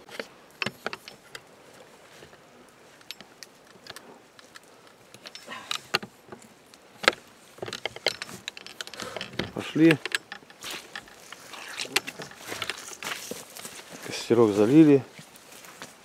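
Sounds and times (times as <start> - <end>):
gear clicking and knocking: 7.0 - 13.7.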